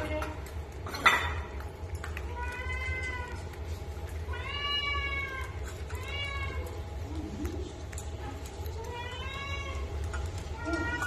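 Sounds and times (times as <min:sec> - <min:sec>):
cat meowing: 0:02.2 - 0:03.6, 0:04.2 - 0:07.6, 0:08.6 - 0:11.0.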